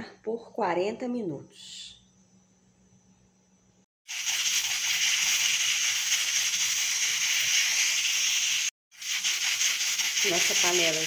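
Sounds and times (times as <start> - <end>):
steam hissing from pressure valve: 4.1 - 11.0.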